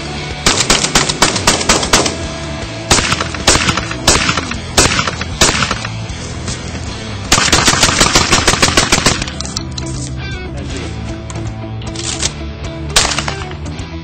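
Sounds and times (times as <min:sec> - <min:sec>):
background music: 0:00.0 - 0:14.0
shotgun shots: 0:00.4 - 0:06.1, 0:07.3 - 0:09.4, 0:13.0 - 0:13.7.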